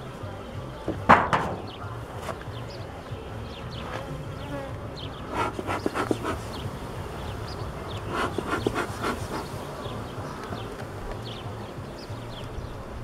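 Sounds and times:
honeybees buzzing: 0.0s - 13.0s
bellows smoker puffs: 5.3s - 6.6s, 8.0s - 9.6s.

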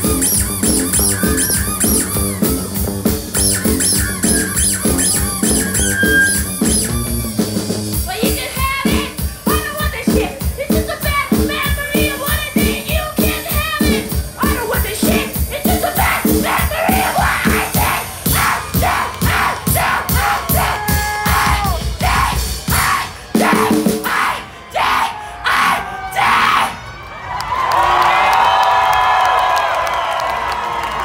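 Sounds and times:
guitars: 0.0s - 9.0s
fast drum beat: 0.0s - 24.1s
woman singing: 8.1s - 17.3s.

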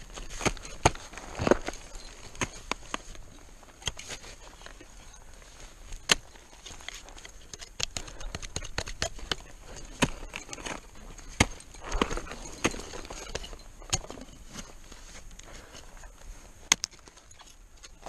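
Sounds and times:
ice axes striking ice: 0.2s - 3.0s, 6.0s - 14.3s.

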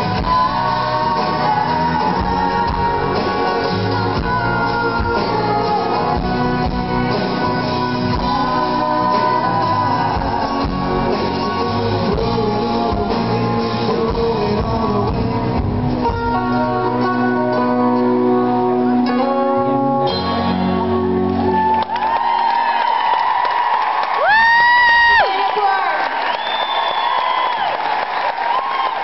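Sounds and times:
electric bass: 0.0s - 21.8s
acoustic guitar: 0.0s - 21.9s
drums: 0.0s - 25.5s.

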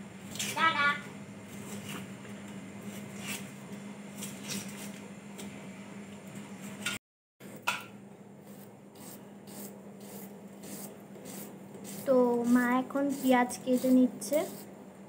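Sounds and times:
fingers peeling garlic: 9.0s - 14.6s.

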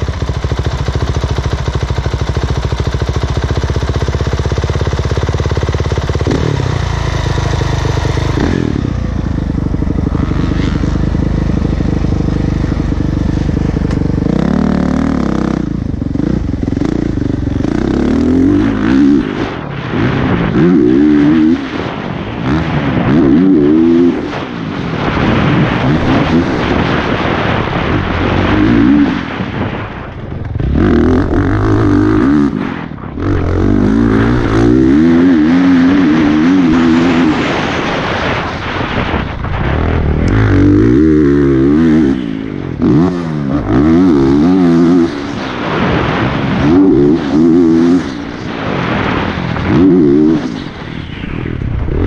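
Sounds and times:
motorcycle engine revving hard: 0.0s - 52.0s
wind rushing over microphone: 4.2s - 52.0s.

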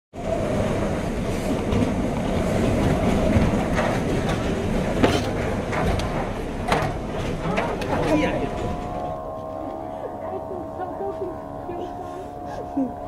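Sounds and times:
strong wind and driving rain: 0.2s - 13.0s.

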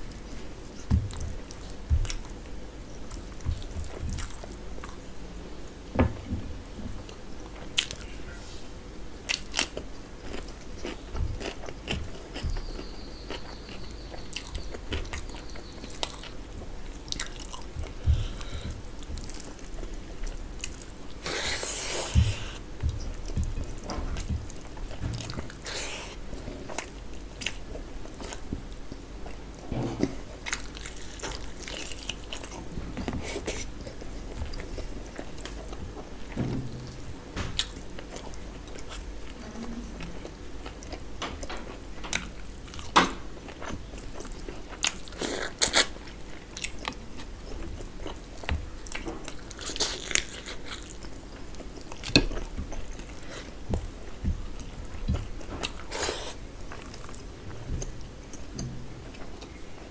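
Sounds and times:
wet chewing and mouth noises: 0.0s - 5.1s, 9.3s - 59.9s.

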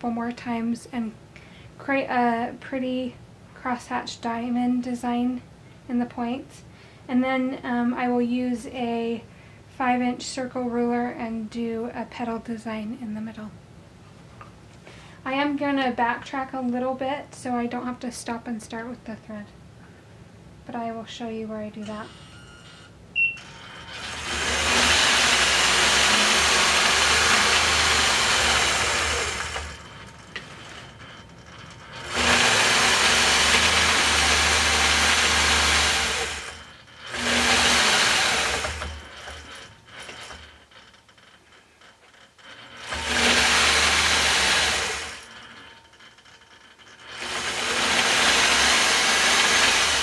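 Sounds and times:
short beep: 22.1s - 23.5s
quilting machine stitching: 23.4s - 50.0s.

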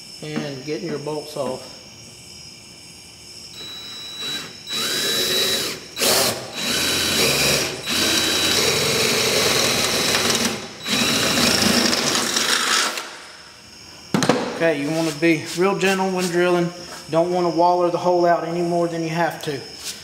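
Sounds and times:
cordless drill drilling metal: 3.6s - 13.1s.

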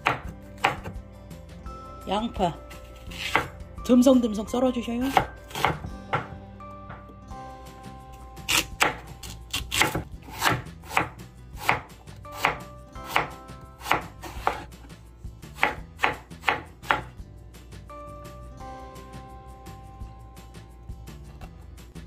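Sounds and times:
knife chopping on wooden board: 0.0s - 1.0s, 3.2s - 3.6s, 5.1s - 7.1s, 8.5s - 14.7s, 15.6s - 17.1s.

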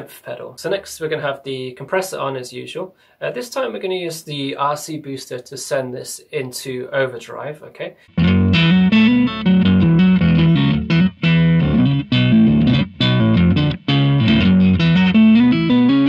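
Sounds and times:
overdriven electric guitar riff: 8.1s - 16.0s.

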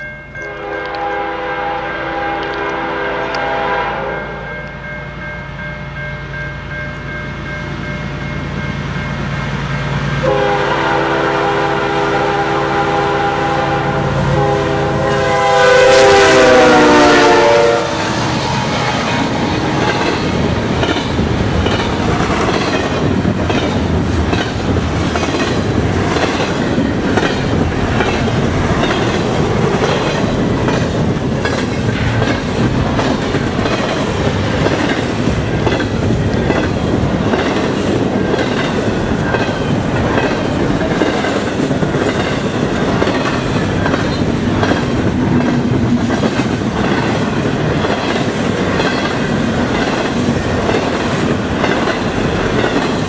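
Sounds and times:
diesel locomotive passing: 0.0s - 53.0s
locomotive air horn: 0.4s - 4.4s, 10.2s - 18.6s
train wheels clattering on rails: 16.0s - 53.0s.

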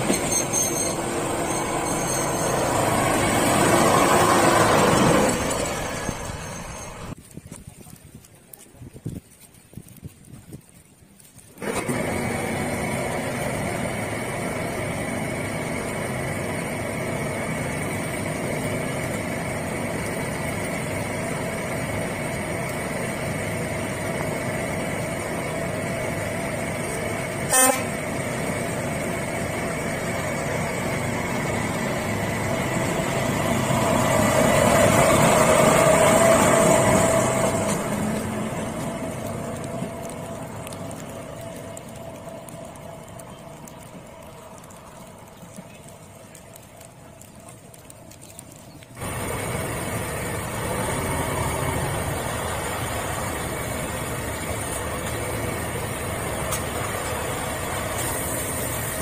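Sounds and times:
diesel locomotive engine running: 0.0s - 7.2s, 11.6s - 59.0s
whining tones: 0.0s - 7.2s.

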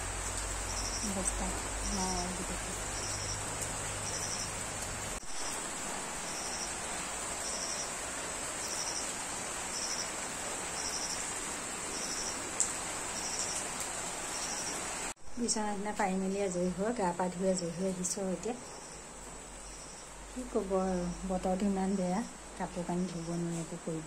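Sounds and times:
rain falling on foliage: 0.0s - 24.0s
insect trilling: 0.7s - 4.6s, 8.6s - 9.1s, 9.7s - 10.1s.

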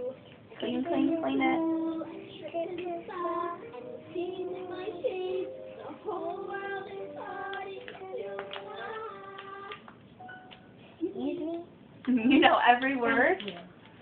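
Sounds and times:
child singing: 0.0s - 9.8s, 11.0s - 11.7s.

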